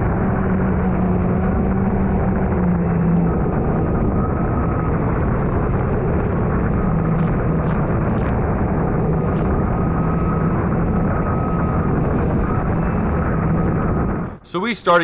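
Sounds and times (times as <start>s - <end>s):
watercraft engine droning: 0.0s - 14.4s
faint high whine: 0.0s - 15.0s.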